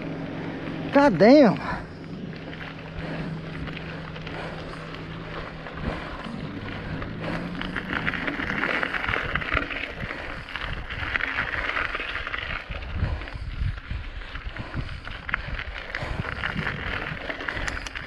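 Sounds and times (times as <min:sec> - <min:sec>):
low steady hum: 0:00.0 - 0:17.9
tyres rolling over gravel: 0:00.0 - 0:18.0
wind on microphone: 0:02.0 - 0:18.0.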